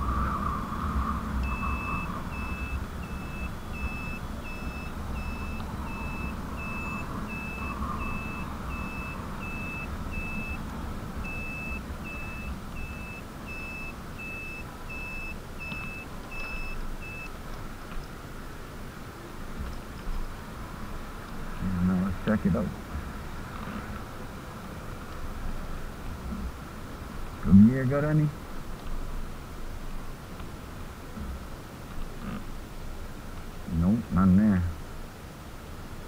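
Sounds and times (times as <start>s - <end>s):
wind and road rumble: 0.0s - 36.0s
turn-signal beeper: 1.4s - 10.6s, 11.2s - 17.3s.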